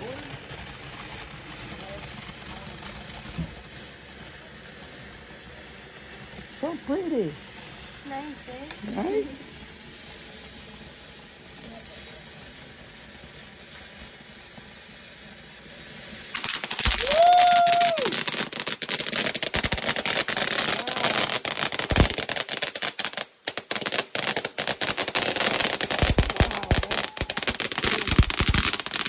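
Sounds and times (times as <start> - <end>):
deeper firework pops: 0.0 - 6.6, 16.2 - 29.0
firework crackling: 0.0 - 29.0.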